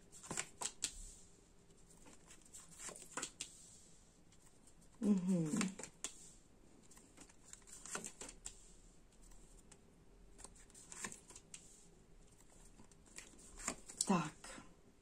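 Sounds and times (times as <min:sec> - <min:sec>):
cards clicking and rustling: 0:00.1 - 0:01.0, 0:02.0 - 0:03.5, 0:05.4 - 0:06.2, 0:06.9 - 0:08.6, 0:10.4 - 0:11.7, 0:12.3 - 0:14.1.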